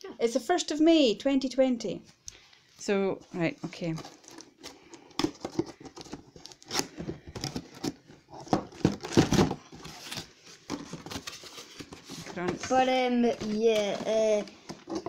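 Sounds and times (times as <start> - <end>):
plastic packaging crinkling: 3.8 - 12.4
cardboard box being opened: 3.9 - 12.5.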